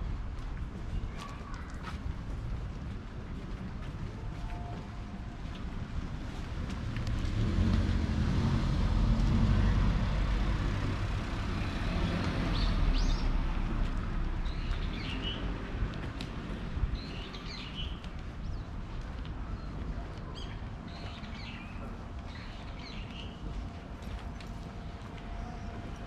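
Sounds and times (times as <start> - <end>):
passing vehicle rumble: 5.8 - 17.6.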